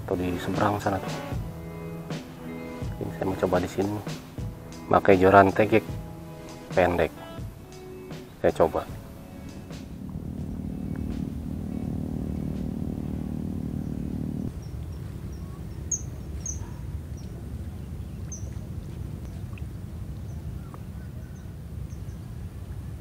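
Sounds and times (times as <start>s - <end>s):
background music: 0.0s - 14.5s
small birds chirping: 0.0s - 19.6s
low outdoor rumble: 0.0s - 21.0s.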